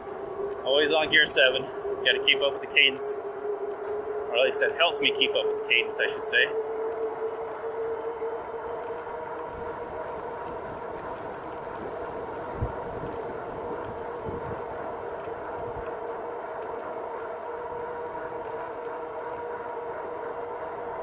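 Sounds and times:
electric bike motor whine: 0.0 - 21.0
light rattling ticks: 8.8 - 17.3
rush of wind noise: 8.9 - 16.2.

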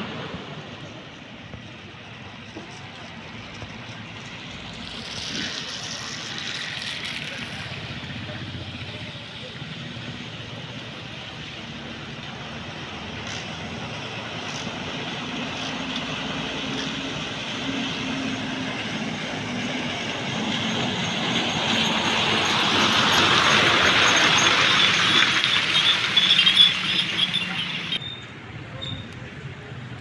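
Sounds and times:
tyres hissing on wet road: 0.0 - 28.0
diesel truck engine passing: 2.8 - 28.0.

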